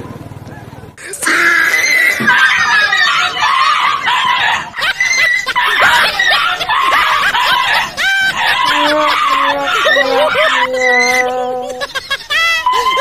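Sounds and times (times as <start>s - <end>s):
dog yelping: 1.7s - 13.0s.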